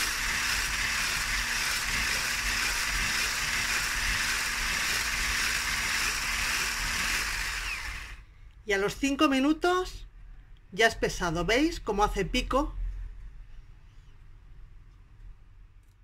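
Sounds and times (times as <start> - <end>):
electric whisk running: 0.0 - 8.2.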